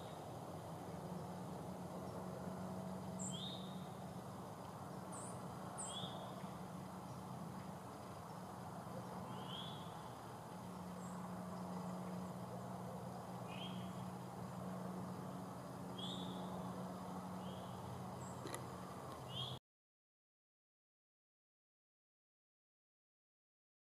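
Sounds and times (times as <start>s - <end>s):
steady low hum: 0.0s - 19.6s
bird chirping: 3.2s - 4.2s, 4.9s - 10.2s, 10.8s - 14.6s, 15.6s - 16.7s, 17.4s - 18.6s, 19.2s - 19.6s.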